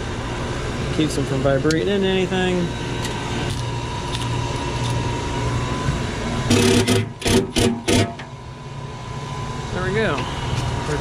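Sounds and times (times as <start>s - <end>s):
steady mechanical hum: 0.0s - 11.0s.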